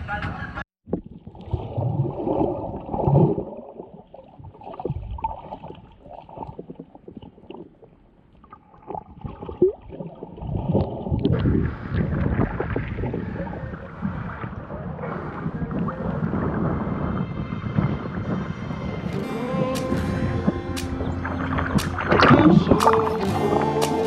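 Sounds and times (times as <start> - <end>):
underwater clicks and bubbles: 0.9 - 13.5, 20.8 - 24.0
underwater water rushing: 0.9 - 18.3, 19.2 - 24.0.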